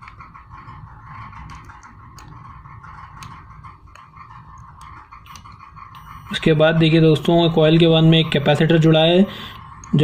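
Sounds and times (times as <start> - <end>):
multimeter continuity beep: 5.3 - 6.4.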